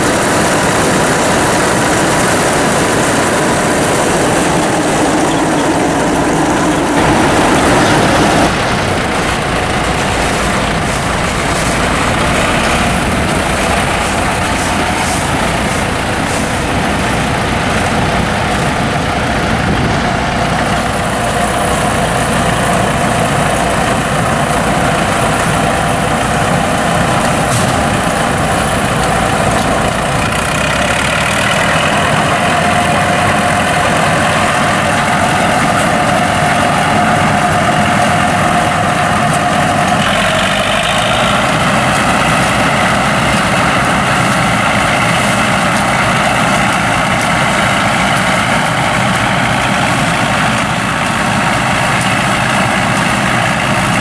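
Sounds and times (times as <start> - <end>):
combine harvester engine drone: 0.0 - 54.0.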